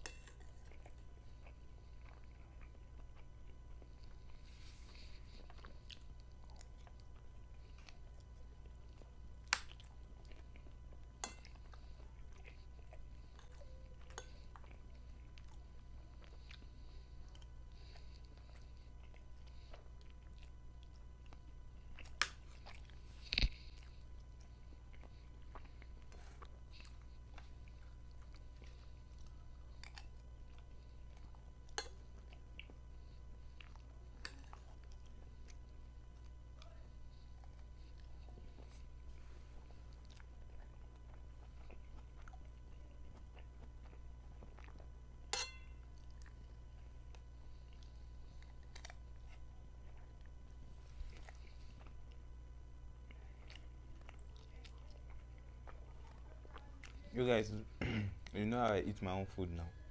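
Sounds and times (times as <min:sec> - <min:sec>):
chewing soft pasta: 0:00.0 - 0:59.9
steady low hum: 0:00.0 - 0:59.9
cutlery clicking on a plate: 0:45.4 - 0:45.7.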